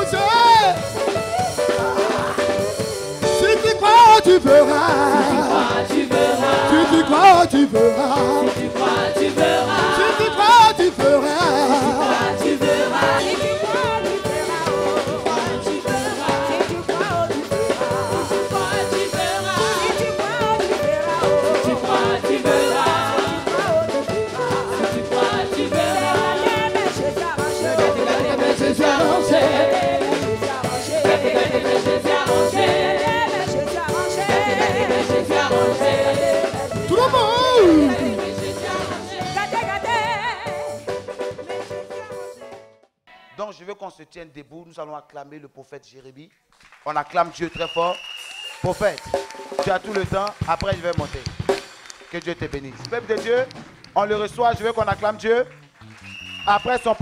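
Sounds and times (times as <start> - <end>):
voices singing gospel: 0.0 - 41.0
steady drum beat: 0.0 - 42.2, 48.6 - 55.3.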